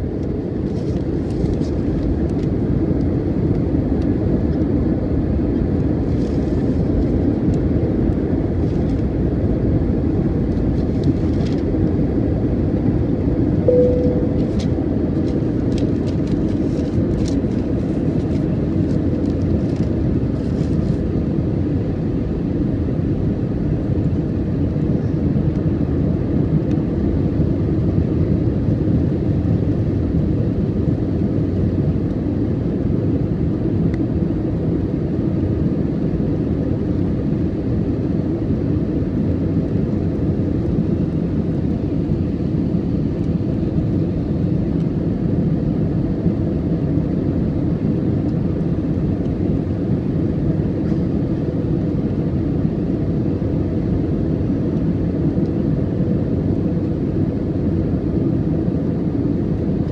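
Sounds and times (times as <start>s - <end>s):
jet engine rumble in cabin: 0.0s - 59.9s
short single tone: 13.6s - 14.7s.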